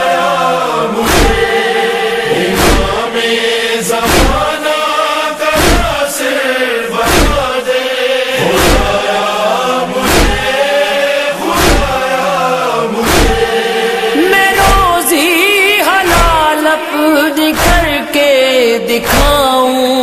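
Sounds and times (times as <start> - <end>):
male chorus chanting drone: 0.0 - 18.2
chest-beating thumps: 1.0 - 1.6, 2.4 - 3.1, 4.0 - 4.6, 5.5 - 6.0, 7.0 - 7.6, 8.4 - 9.1, 10.0 - 10.6, 11.5 - 12.0, 13.0 - 13.6, 14.6 - 15.0.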